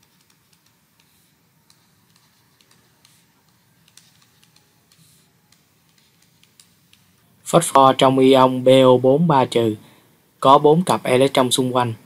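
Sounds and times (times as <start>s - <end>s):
stylus clicking and tapping on tablet: 0.0s - 7.2s.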